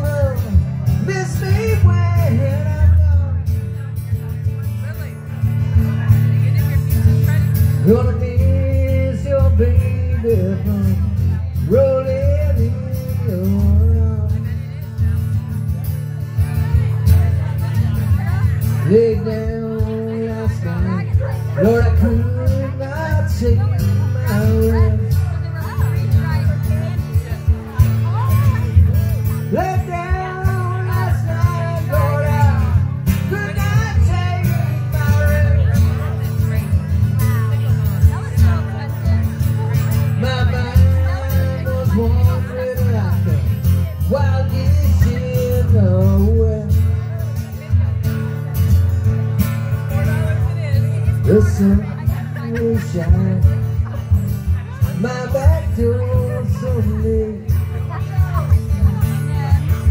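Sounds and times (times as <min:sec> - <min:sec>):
acoustic guitar strumming: 0:00.0 - 0:59.9.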